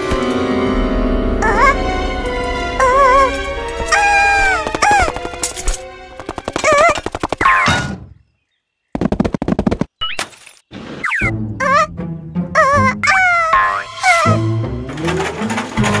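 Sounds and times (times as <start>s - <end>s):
wavering squeaky gliding sounds: 12.6s - 14.5s.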